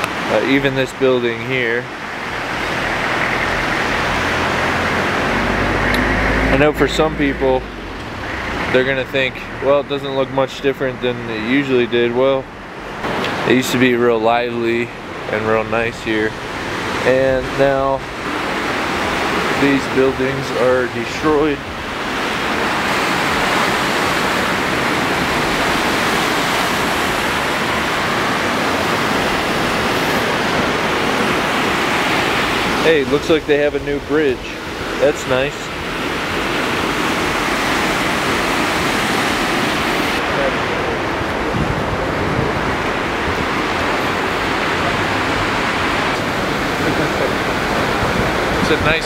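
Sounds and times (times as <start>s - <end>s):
river rushing over rapids: 0.0s - 49.0s.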